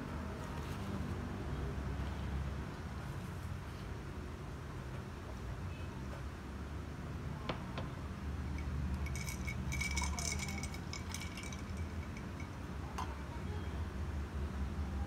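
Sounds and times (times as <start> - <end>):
ice clinking against glass: 8.5 - 13.2.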